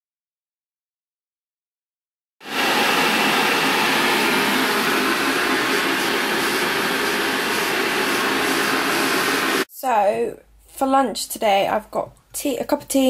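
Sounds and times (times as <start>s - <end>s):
electric kettle heating water: 2.4s - 9.7s.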